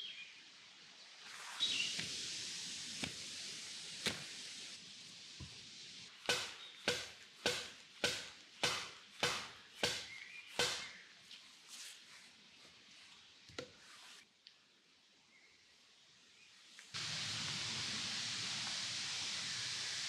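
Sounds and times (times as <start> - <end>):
wood chopping blows: 6.2 - 11.0.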